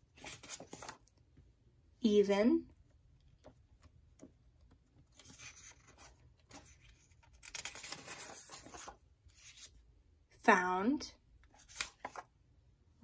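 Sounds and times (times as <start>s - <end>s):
paper card rustling and scraping: 0.0s - 1.1s, 5.0s - 9.8s, 11.5s - 12.3s.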